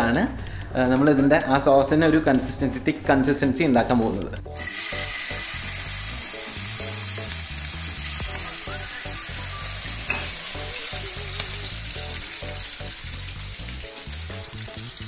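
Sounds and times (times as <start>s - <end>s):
sauce sizzling in a frying pan: 4.5s - 15.0s.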